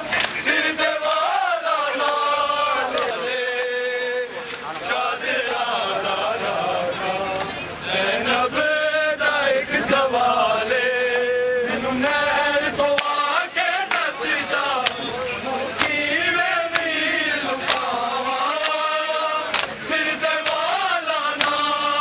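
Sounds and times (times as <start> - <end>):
men chanting on long held notes: 0.0 - 22.0
hands slapping bare chests: 0.1 - 1.3, 13.0 - 13.2, 14.8 - 15.0, 15.8 - 16.0, 17.6 - 18.9, 19.5 - 21.8.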